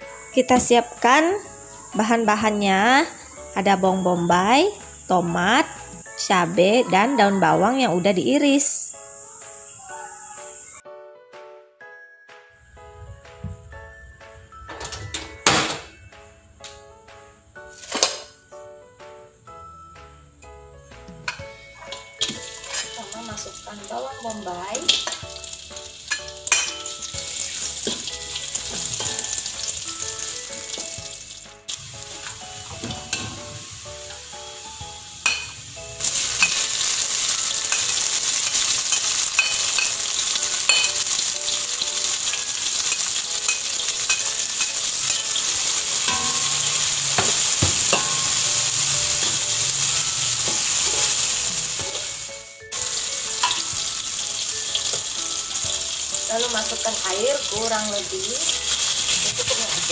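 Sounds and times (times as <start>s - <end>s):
vegetables sizzling in hot oil: 0.0s - 9.9s, 21.3s - 59.9s
metal spatula scraping wok: 21.9s - 23.2s, 32.2s - 33.6s, 35.3s - 41.3s, 42.0s - 52.3s, 52.9s - 55.6s, 58.4s - 59.9s.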